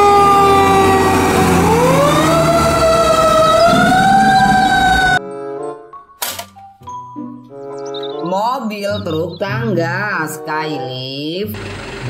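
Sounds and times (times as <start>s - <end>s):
fire engine siren wailing: 0.0s - 5.2s.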